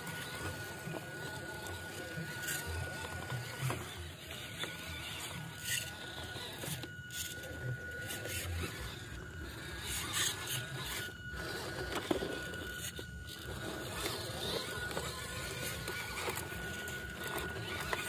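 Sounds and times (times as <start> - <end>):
electric motor whining: 0.0 - 18.0.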